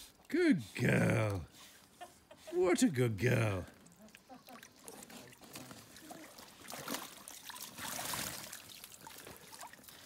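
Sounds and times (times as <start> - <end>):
dog splashing in pool water: 3.6 - 10.0.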